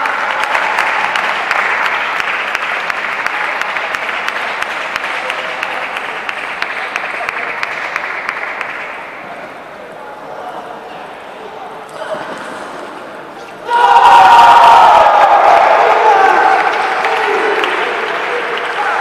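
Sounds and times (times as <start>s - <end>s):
spectators applauding: 0.0s - 9.0s, 14.6s - 19.0s.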